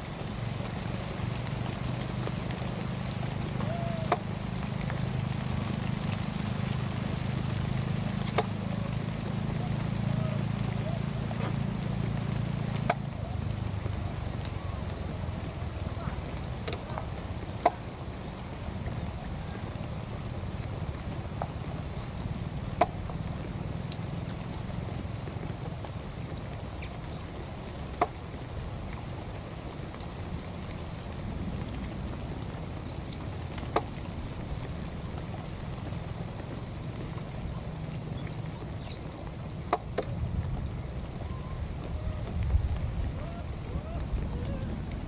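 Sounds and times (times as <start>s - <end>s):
wind rumbling on microphone: 0.0s - 45.0s
faint high chirps: 37.9s - 39.0s.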